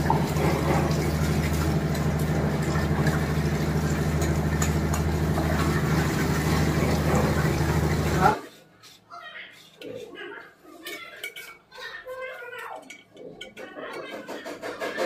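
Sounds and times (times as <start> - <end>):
low mechanical hum: 0.0 - 8.4.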